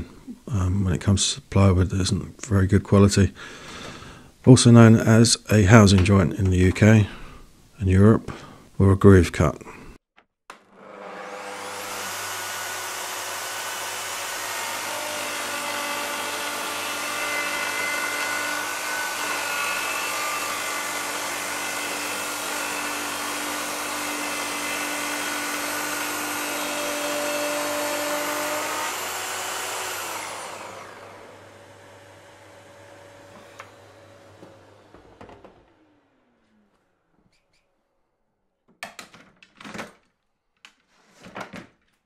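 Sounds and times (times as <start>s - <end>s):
circular saw cutting plywood: 10.5s - 36.7s
saw motor winding down: 10.6s - 36.5s.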